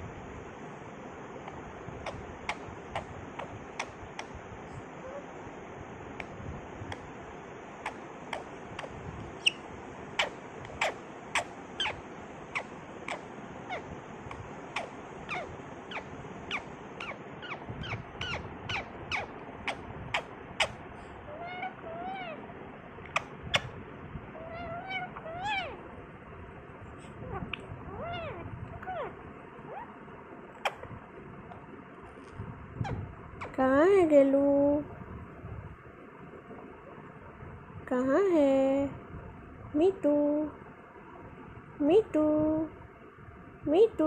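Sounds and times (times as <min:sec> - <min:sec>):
parakeet chirping and chattering: 0:01.4 - 0:05.3, 0:07.7 - 0:22.5, 0:23.1 - 0:25.9, 0:27.1 - 0:30.0, 0:30.6 - 0:31.0, 0:32.8 - 0:33.6.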